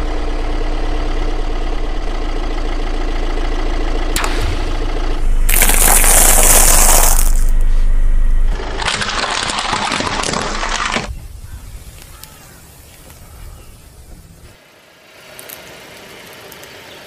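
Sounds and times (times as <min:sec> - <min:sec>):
plastic toy crunching: 0:05.5 - 0:07.6
tyre crushing peanut shells: 0:05.5 - 0:07.6.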